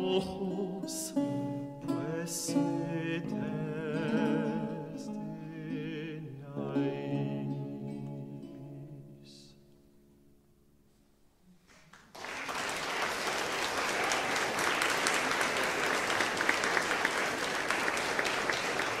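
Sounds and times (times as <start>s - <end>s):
audience applauding: 11.7s - 19.0s.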